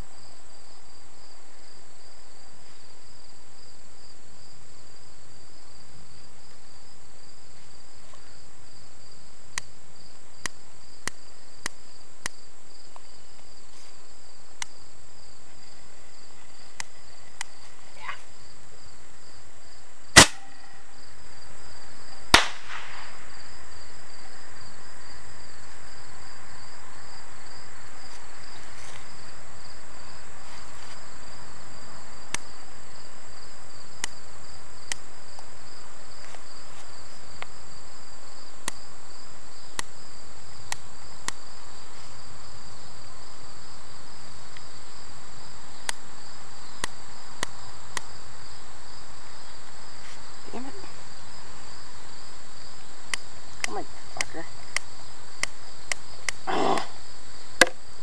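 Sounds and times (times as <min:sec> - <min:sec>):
crickets chirping: 0:00.0 - 0:58.0
firework bang: 0:20.2 - 0:20.8, 0:22.3 - 0:23.3.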